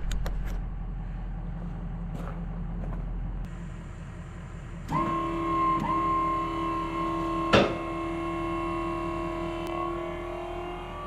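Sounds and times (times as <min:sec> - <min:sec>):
hydraulic pump motor whining: 0:04.7 - 0:11.0.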